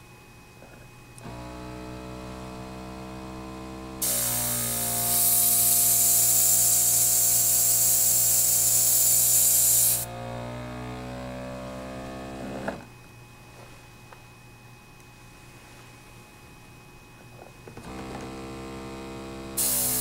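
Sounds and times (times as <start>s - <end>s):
compressor humming: 0.0s - 20.0s
air hissing from airbrush: 4.0s - 10.1s, 19.6s - 20.0s.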